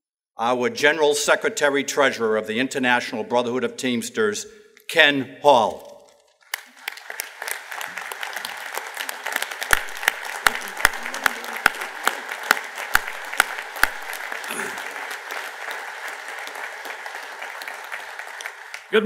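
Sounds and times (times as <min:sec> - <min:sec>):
audience applauding: 0:06.4 - 0:19.0
sharp close hand slaps: 0:09.4 - 0:14.8.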